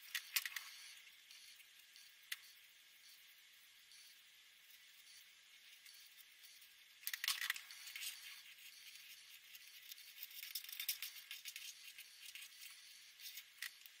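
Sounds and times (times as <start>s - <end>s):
marker pens scratching on paper: 7.3s - 13.9s.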